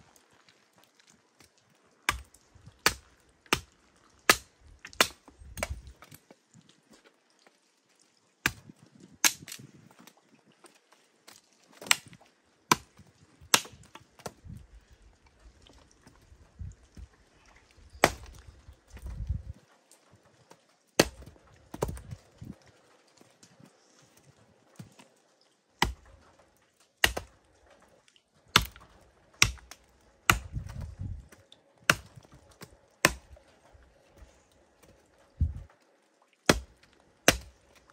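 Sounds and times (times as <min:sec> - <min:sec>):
hatchet chopping wood: 0:02.1 - 0:05.9, 0:08.4 - 0:09.7, 0:11.8 - 0:14.4, 0:18.0 - 0:18.4, 0:21.0 - 0:22.5, 0:25.8 - 0:26.1, 0:27.0 - 0:27.4, 0:28.5 - 0:31.2, 0:31.9 - 0:33.4, 0:36.5 - 0:37.6.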